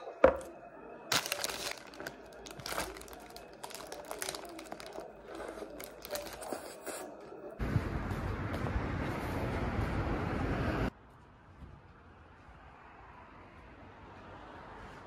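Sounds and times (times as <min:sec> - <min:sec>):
paper wrapper crinkling: 0:01.1 - 0:07.1.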